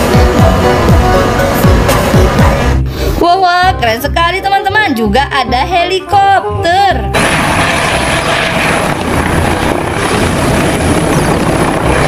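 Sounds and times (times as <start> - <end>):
helicopter hovering: 7.2 - 12.0.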